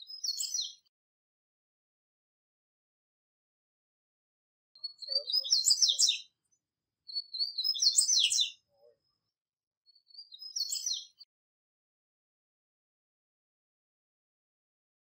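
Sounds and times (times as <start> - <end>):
bird singing high twittering notes: 0.0 - 0.8, 4.8 - 6.4, 7.1 - 9.0, 10.0 - 11.3.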